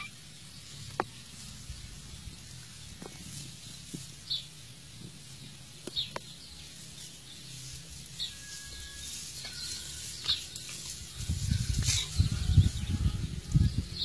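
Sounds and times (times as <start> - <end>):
low rumble on microphone: 10.9 - 14.0.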